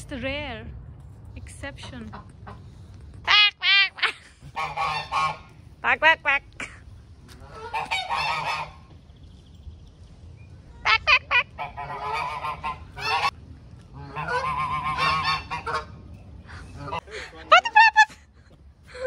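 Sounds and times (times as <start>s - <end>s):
goose honking: 3.2s - 6.5s, 7.3s - 8.9s, 10.9s - 16.0s.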